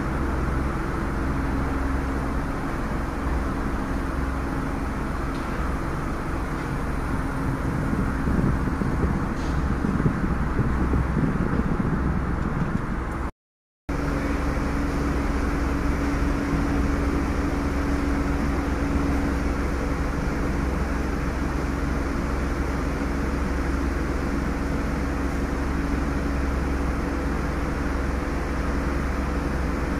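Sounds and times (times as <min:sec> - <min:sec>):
car cabin rumble and hum: 0:00.0 - 0:13.3.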